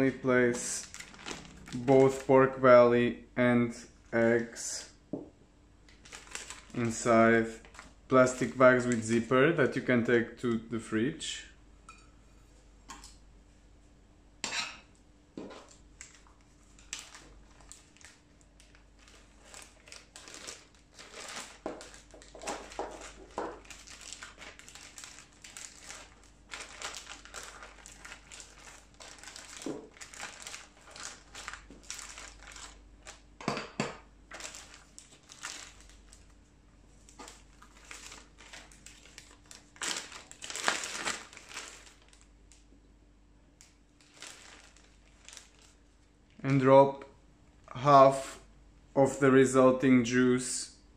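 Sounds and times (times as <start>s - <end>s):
plastic bags crinkling: 0.0s - 2.6s, 5.9s - 9.1s, 16.0s - 33.3s, 34.3s - 36.4s, 37.0s - 42.7s, 44.0s - 46.0s.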